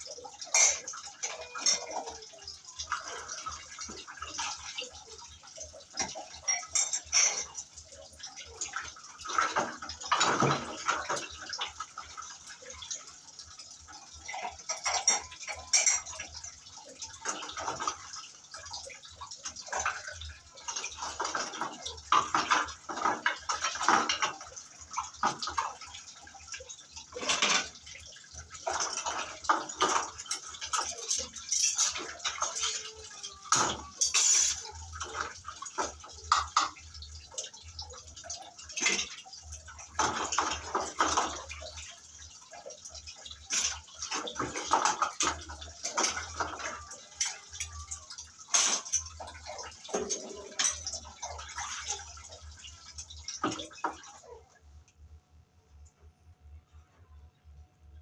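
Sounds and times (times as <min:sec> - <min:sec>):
water sloshing and splashing: 0:00.0 - 0:55.0
utensils clinking together: 0:00.4 - 0:03.9, 0:06.0 - 0:07.9, 0:14.2 - 0:16.6, 0:27.2 - 0:27.8, 0:28.9 - 0:36.8, 0:43.5 - 0:52.1.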